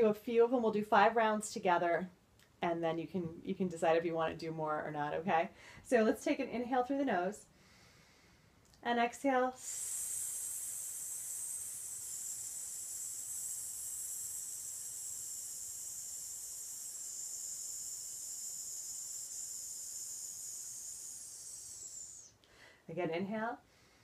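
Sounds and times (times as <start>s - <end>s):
woman exhaling with a hiss: 9.6s - 22.7s.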